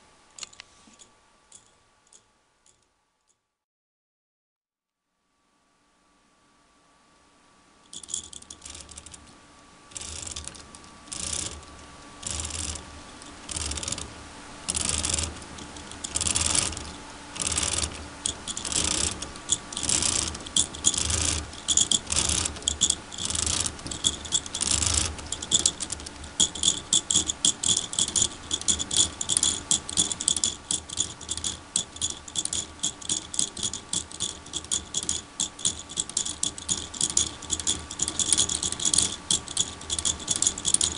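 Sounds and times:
plastic gear ratchet clicking: 0:07.9 - 0:09.2, 0:09.9 - 0:14.1, 0:14.7 - 0:40.9.

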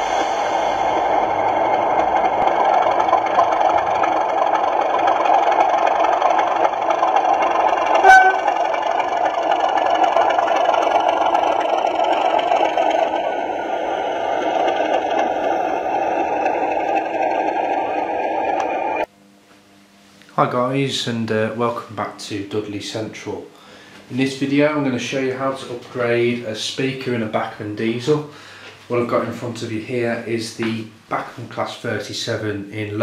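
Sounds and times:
model locomotive diesel engine sound: 0:00.0 - 0:19.1.

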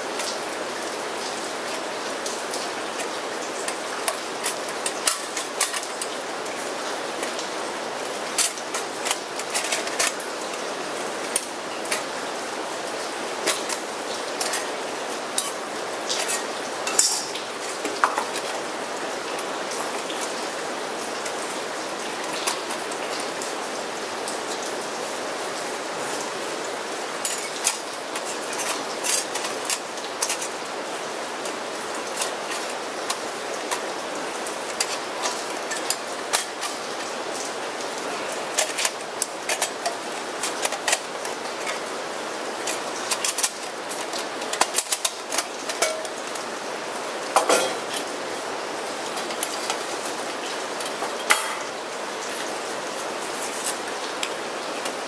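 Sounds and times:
rain hissing: 0:00.0 - 0:55.0
metal stove panels clicking: 0:16.2 - 0:18.5, 0:43.1 - 0:46.4, 0:47.4 - 0:48.0, 0:50.8 - 0:51.7.

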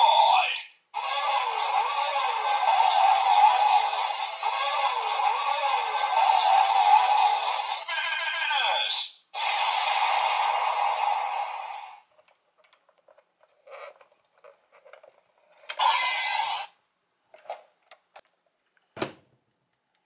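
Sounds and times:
toy electronic sound effect: 0:00.0 - 0:12.0, 0:15.8 - 0:16.8.

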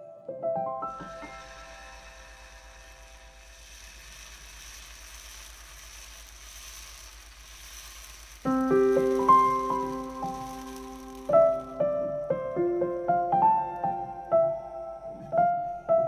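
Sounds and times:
piano music: 0:00.0 - 0:03.5, 0:08.4 - 0:16.0
batter sizzling on a griddle: 0:00.8 - 0:14.7.

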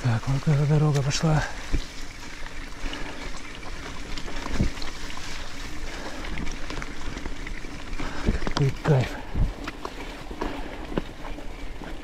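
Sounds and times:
bike tyre rumble on dirt: 0:00.0 - 0:12.0
wind noise on microphone: 0:09.2 - 0:09.8.

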